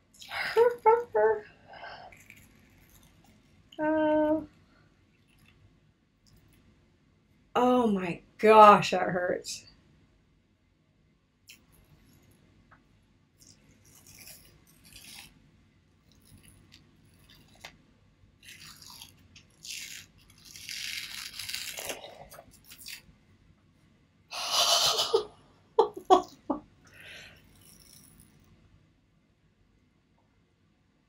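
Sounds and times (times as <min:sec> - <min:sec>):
face mask peeling crackle: 0:13.4 - 0:15.4, 0:18.4 - 0:23.1.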